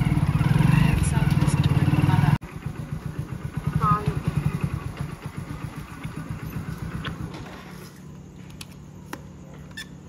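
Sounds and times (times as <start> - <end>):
motorcycle engine running: 0.0 - 7.9.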